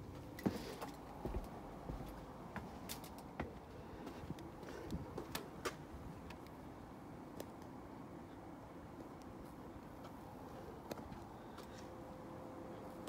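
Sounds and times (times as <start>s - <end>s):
footsteps on steel stairs: 0.0s - 5.8s.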